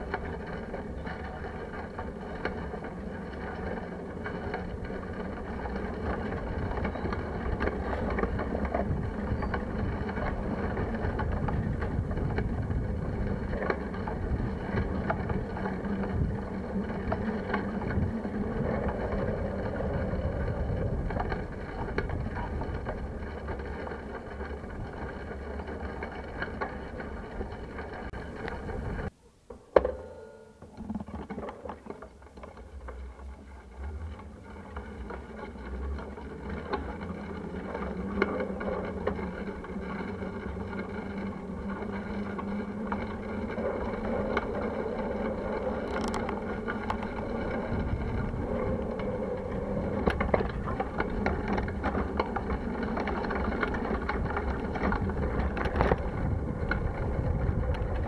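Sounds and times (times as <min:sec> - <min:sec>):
bicycle clicks and rattles: 0:00.0 - 0:29.1, 0:30.6 - 0:58.0
wind buffeting microphone: 0:00.0 - 0:29.1, 0:33.8 - 0:58.0
road rumble: 0:00.0 - 0:29.2, 0:30.8 - 0:58.0.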